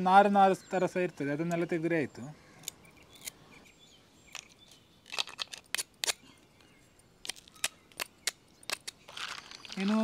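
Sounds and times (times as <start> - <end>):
knife scraping mussel shells: 4.4 - 6.2, 7.2 - 10.0.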